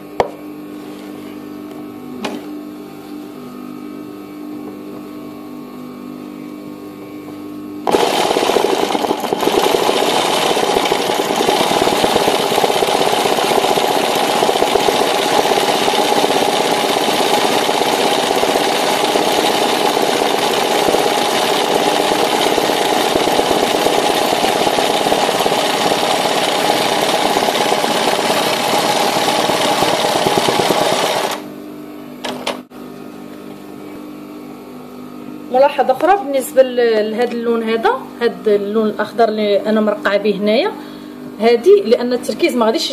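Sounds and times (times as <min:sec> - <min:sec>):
machine motor humming: 0:06.3 - 0:35.1.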